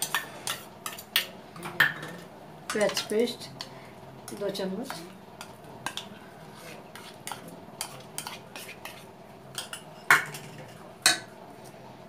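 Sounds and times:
spoon scraping steel bowl: 0:06.6 - 0:09.8.

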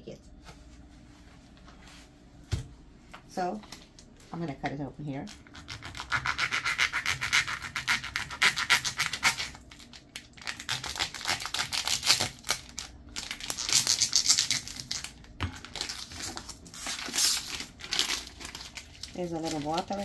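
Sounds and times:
knife sawing through plastic: 0:05.5 - 0:09.6
plastic wrapper crinkling: 0:07.3 - 0:20.0.

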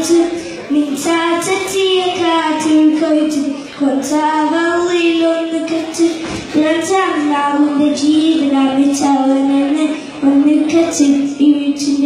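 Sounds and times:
boy singing into a microphone: 0:00.0 - 0:12.0.

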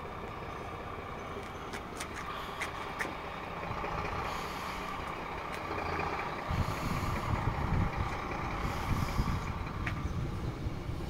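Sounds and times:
heavy truck engine humming: 0:00.0 - 0:11.0
wind buffeting microphone: 0:05.1 - 0:11.0.

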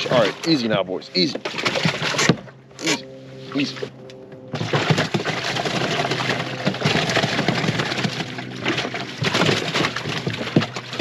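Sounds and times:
fish splashing in water: 0:01.2 - 0:02.5, 0:04.5 - 0:11.0.

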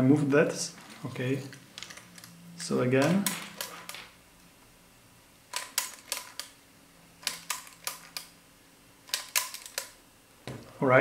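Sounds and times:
faint mechanism hum: 0:00.0 - 0:11.0
cassette deck mechanism clicking: 0:07.2 - 0:08.3, 0:09.1 - 0:10.0.

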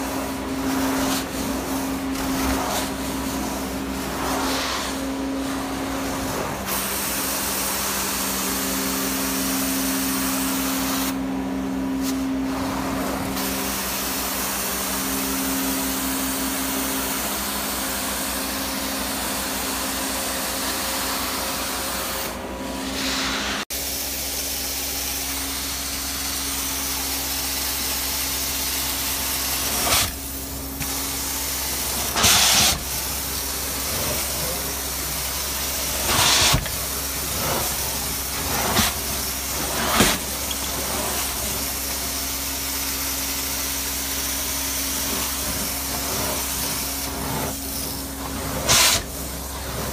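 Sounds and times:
suction hiss of water and air: 0:45.2 - 0:49.2.

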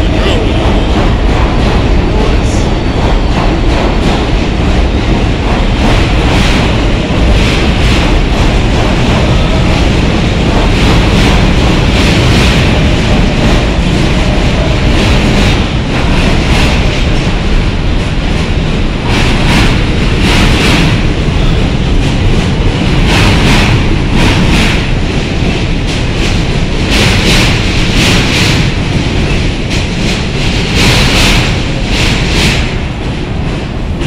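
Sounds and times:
subway train wheel rumble: 0:00.0 - 0:34.0.

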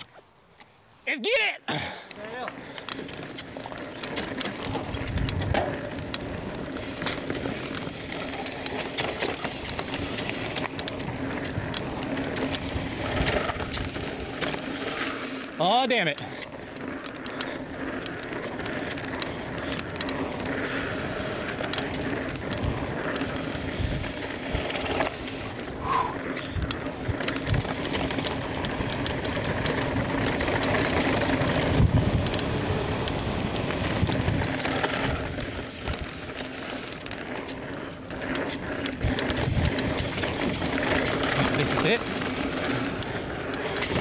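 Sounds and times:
bike rattling: 0:01.8 - 0:44.0
tyres rolling over dirt and rock: 0:02.3 - 0:44.0
short high squeals: 0:08.1 - 0:09.7, 0:13.0 - 0:15.6, 0:23.8 - 0:25.5, 0:34.0 - 0:37.0.

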